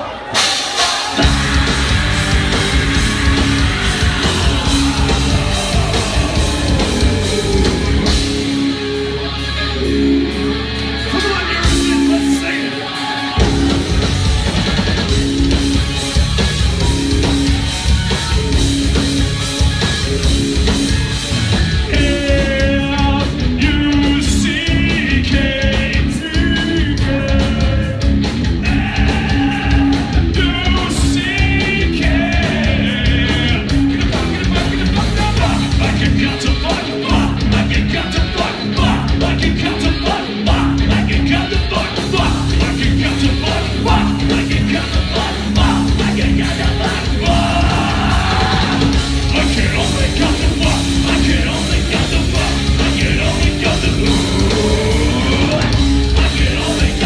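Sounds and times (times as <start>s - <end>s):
heavy metal band playing: 0.0s - 57.0s.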